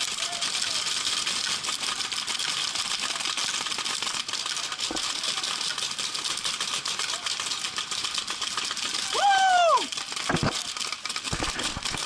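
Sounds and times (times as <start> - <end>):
paintball markers firing: 10.1 - 12.0.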